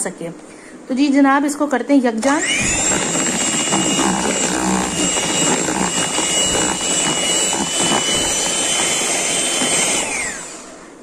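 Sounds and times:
electric hand mixer running: 0:02.2 - 0:10.9.

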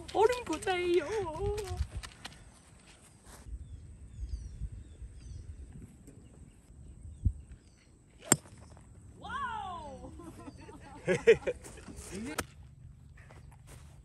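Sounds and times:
faint wind rumble: 0:00.0 - 0:14.0
small birds chirping: 0:00.7 - 0:11.1
golf club striking ball: 0:08.2 - 0:08.7.

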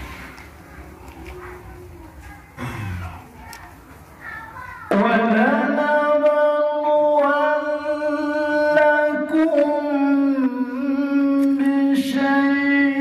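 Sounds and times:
man reciting melodically: 0:04.9 - 0:13.0.

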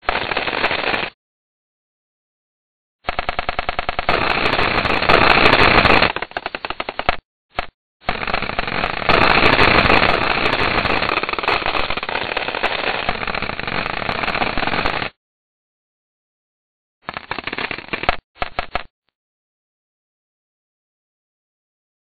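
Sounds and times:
computer-generated rapid clicks: 0:03.0 - 0:15.1, 0:17.0 - 0:18.9.

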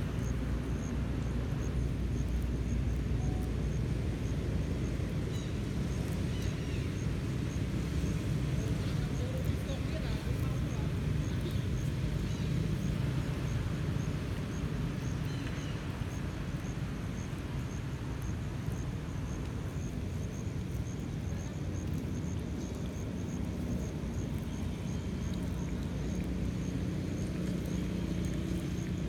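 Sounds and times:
low outdoor background rumble: 0:00.0 - 0:29.0
faint high chirp: 0:03.2 - 0:03.6.

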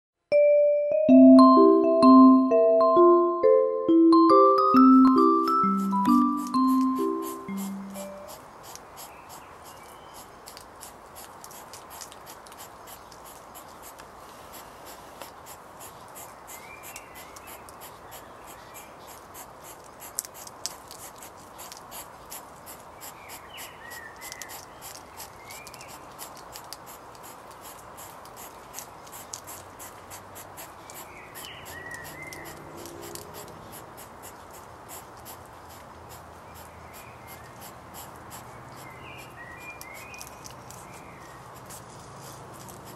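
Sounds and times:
bird chirping: 0:04.4 - 0:08.3
hedgehogs snuffling and chewing: 0:05.9 - 0:42.9.

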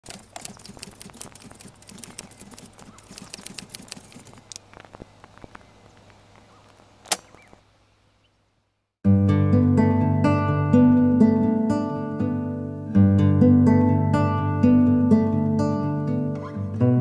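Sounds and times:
patter of small clicks and crackles: 0:00.0 - 0:07.6
sharp click: 0:07.0 - 0:07.5.

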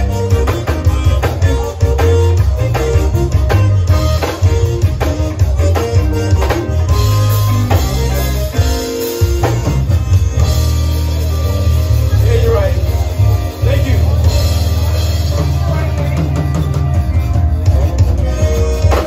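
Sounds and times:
accordion: 0:00.0 - 0:19.0
drum kit dance beat: 0:00.0 - 0:19.0
electric guitar: 0:00.0 - 0:19.0
heavy bass line: 0:00.0 - 0:19.0.

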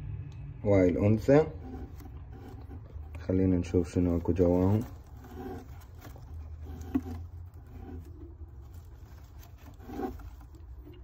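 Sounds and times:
hand rubbing and scraping: 0:00.7 - 0:11.0.

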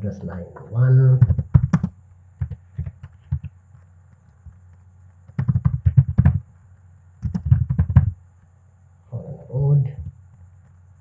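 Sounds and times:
faint low hum: 0:00.0 - 0:11.0
computer keyboard typing: 0:01.2 - 0:03.5, 0:05.3 - 0:06.4, 0:07.2 - 0:08.2.

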